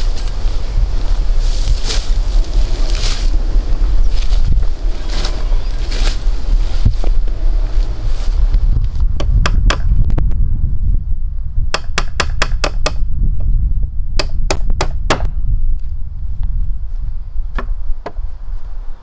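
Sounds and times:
wind on microphone: 0:00.0 - 0:19.0
hammer strikes: 0:11.7 - 0:13.0.

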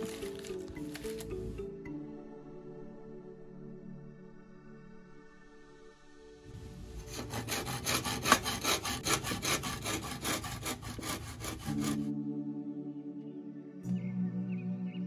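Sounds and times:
hand saw cutting bamboo: 0:00.0 - 0:01.3, 0:07.0 - 0:12.1
soft background music: 0:00.0 - 0:15.0.

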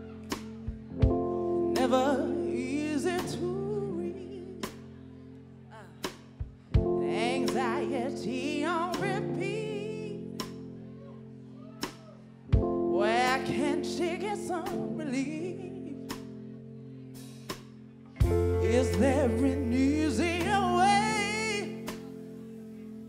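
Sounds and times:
soul band chords: 0:00.0 - 0:23.0
woman singing: 0:01.6 - 0:05.0, 0:06.8 - 0:10.6, 0:12.8 - 0:16.3, 0:18.2 - 0:22.4.

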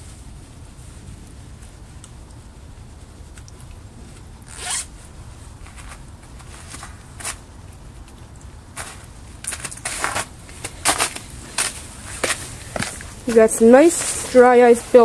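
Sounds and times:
zipper being zipped: 0:04.5 - 0:04.9.

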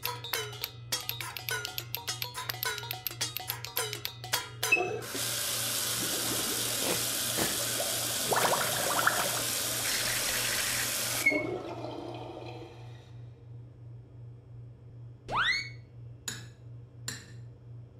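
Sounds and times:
water running into steel sink: 0:05.0 - 0:12.7
hands washing under water: 0:05.1 - 0:10.8.

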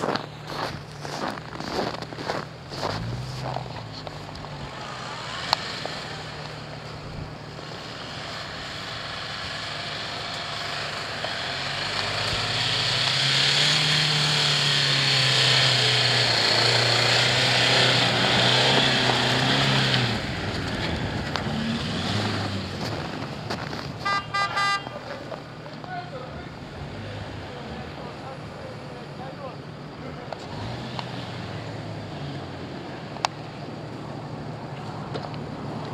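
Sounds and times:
tyres churning through snow: 0:00.0 - 0:24.1, 0:24.9 - 0:34.3
engine working under load: 0:00.0 - 0:35.9.

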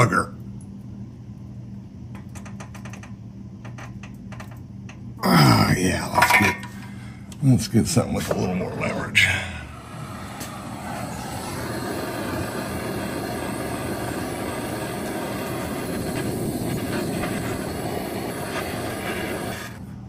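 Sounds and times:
gas torch flame burning: 0:01.7 - 0:20.0.

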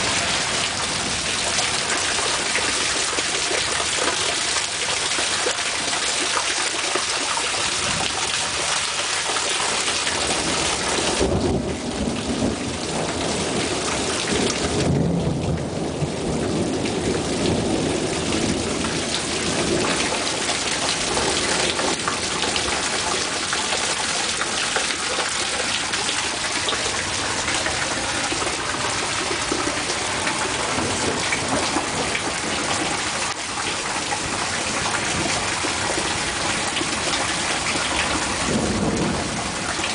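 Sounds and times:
thunder rumbling: 0:00.0 - 0:06.0, 0:10.1 - 0:39.9
heavy rain pouring: 0:00.0 - 0:39.9.

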